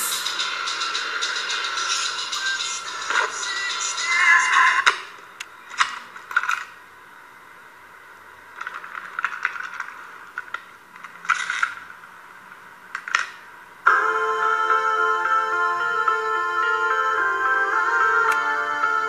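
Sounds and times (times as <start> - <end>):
plastic cassette clicking and rattling: 8.6 - 11.8
piano-like chords music: 13.9 - 19.0.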